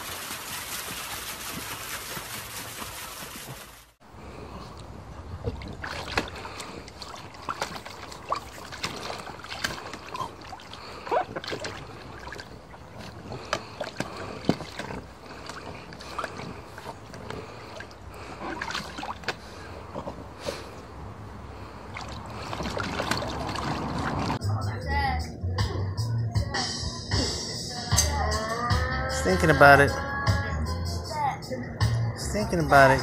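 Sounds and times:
water splashing in paddling pool: 0.0s - 24.4s.

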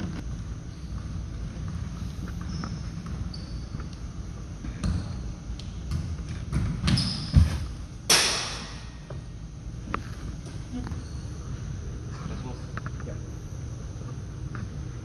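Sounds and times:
ball smacking with echo: 8.1s - 9.0s.

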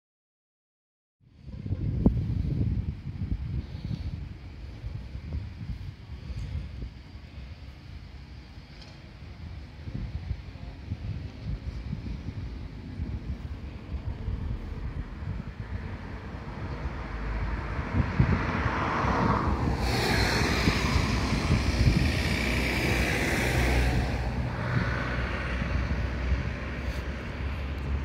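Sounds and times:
tram running past: 12.2s - 28.0s.

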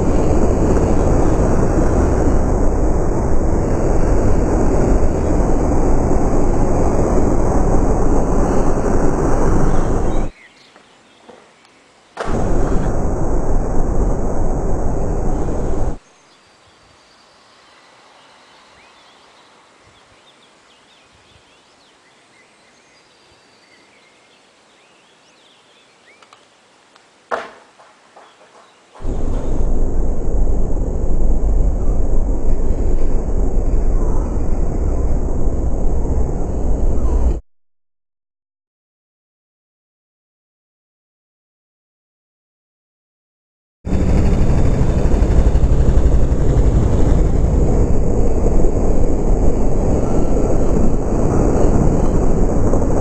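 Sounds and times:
wind rumble on microphone: 0.0s - 10.3s, 12.2s - 16.0s, 29.0s - 37.4s, 43.9s - 53.0s.

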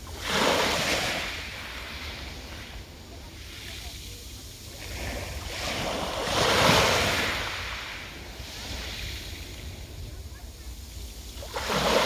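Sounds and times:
waves washing over pebbles: 0.0s - 12.0s.

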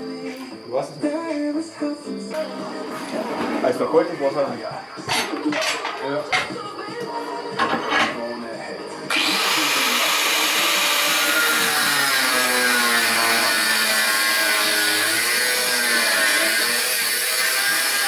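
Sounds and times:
angle grinder whining: 9.1s - 18.0s.

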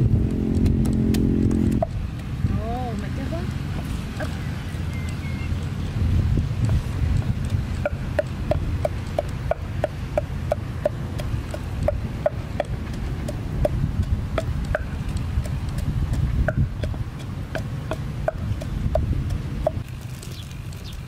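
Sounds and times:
steady low rumble: 0.0s - 20.1s
wooden pestle pounding in mortar: 6.6s - 19.9s.

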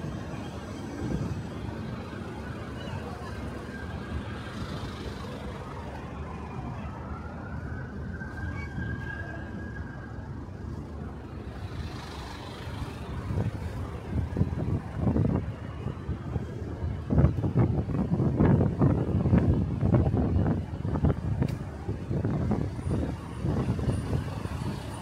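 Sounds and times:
city road traffic: 0.0s - 25.0s
siren gliding up and down: 2.2s - 10.6s
wind buffeting microphone: 12.7s - 25.0s.

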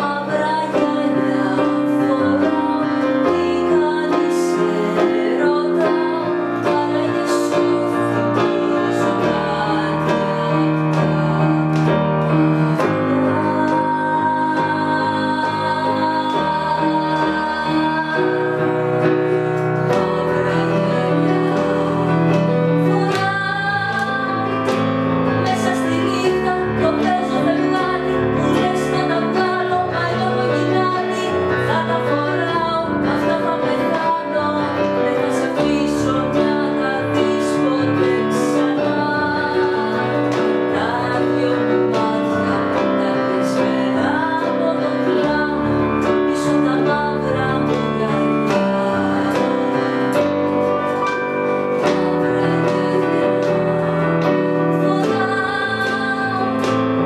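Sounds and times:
electronic keyboard: 0.0s - 57.0s
woman singing a ballad: 0.0s - 57.0s.

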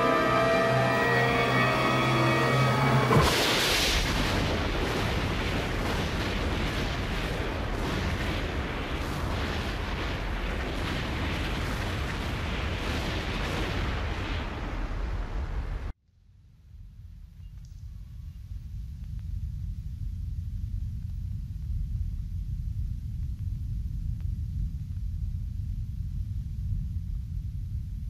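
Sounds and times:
din of explosions and bangs: 0.0s - 16.0s
cannon blast: 2.9s - 15.9s.

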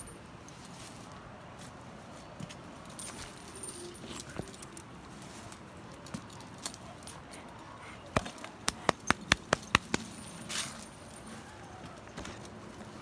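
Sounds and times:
dog collar tags clinking: 2.8s - 13.0s.

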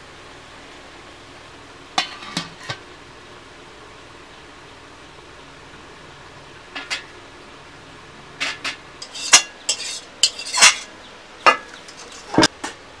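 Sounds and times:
metal spatula scraping a pan: 2.0s - 2.8s, 8.4s - 12.5s.

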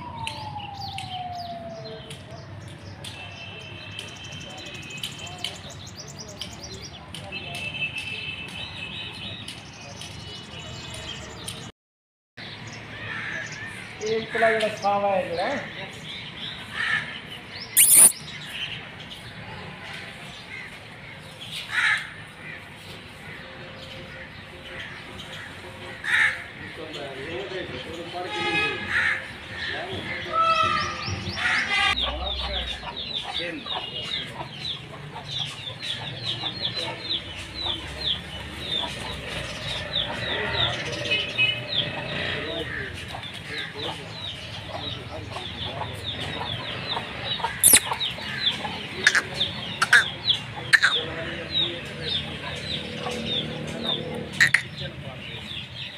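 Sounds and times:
small birds chirping: 17.3s - 19.2s, 32.0s - 55.9s
loud shrill bird call: 17.8s - 18.2s, 47.6s - 48.4s, 49.0s - 51.0s, 54.4s - 54.7s
short high bird chirps: 17.8s - 18.2s, 47.6s - 48.0s, 49.8s - 50.0s, 50.8s - 51.0s
chickens clucking: 44.6s - 55.0s.

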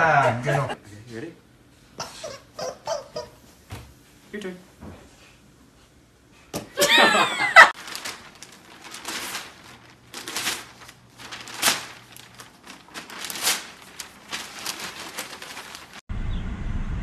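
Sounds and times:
newspaper rustling and crinkling: 7.6s - 16.1s.

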